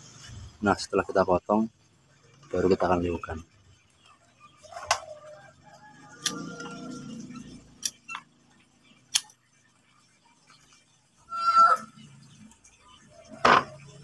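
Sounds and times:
pliers and wire clicking: 7.8s - 8.2s, 9.1s - 9.4s.

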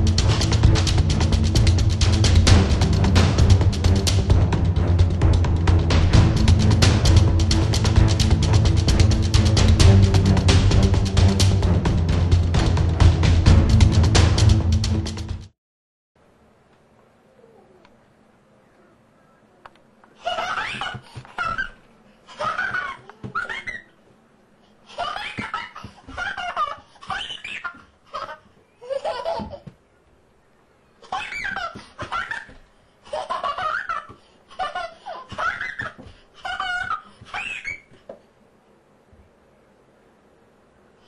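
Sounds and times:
toddler laughing: 20.2s - 24.0s, 24.9s - 29.8s, 31.0s - 38.0s.

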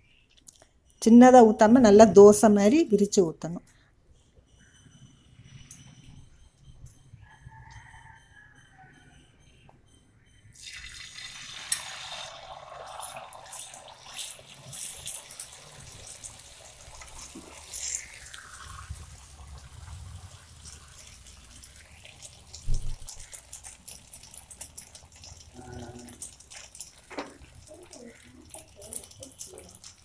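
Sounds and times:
egg sizzling on a griddle: 10.6s - 30.0s.

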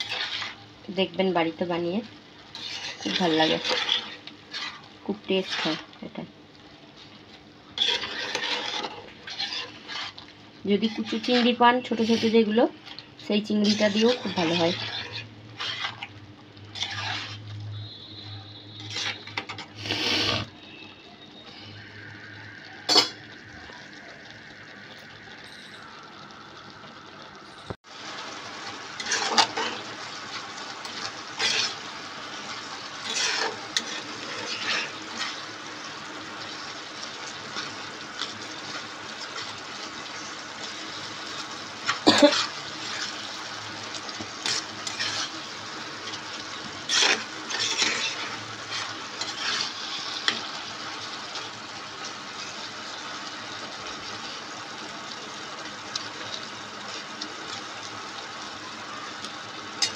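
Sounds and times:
metal spatula scraping a pan: 0.0s - 0.7s, 2.4s - 6.2s, 7.7s - 20.9s, 22.9s - 23.2s, 28.6s - 50.6s
simmering pan hiss: 0.0s - 59.9s.

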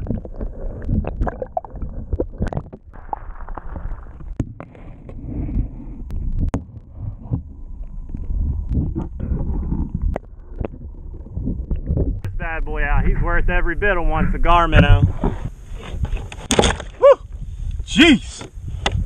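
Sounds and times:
underwater water gurgling: 0.0s - 12.4s
low rumble: 0.0s - 16.2s.

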